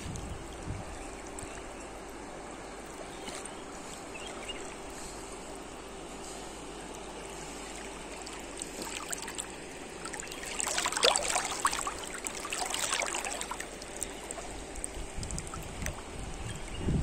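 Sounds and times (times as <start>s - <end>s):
water splashing and lapping: 0.0s - 16.8s
river rippling and gurgling: 0.0s - 17.0s.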